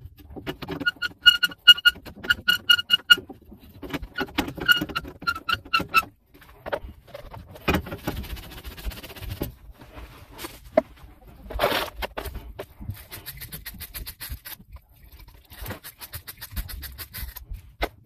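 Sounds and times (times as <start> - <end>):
squeaky metal clicks of pipe cutter: 0.5 - 3.3, 4.0 - 6.1.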